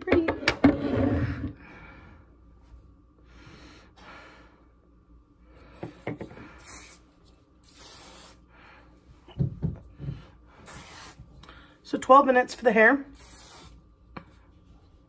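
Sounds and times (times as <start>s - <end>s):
aerosol spray hissing: 6.6s - 7.0s, 7.6s - 8.4s, 10.6s - 11.2s, 13.1s - 13.8s.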